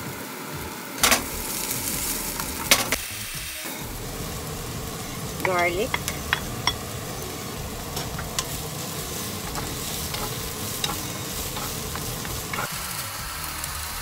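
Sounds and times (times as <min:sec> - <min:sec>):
onion and garlic sizzling in oil: 0:00.0 - 0:14.0.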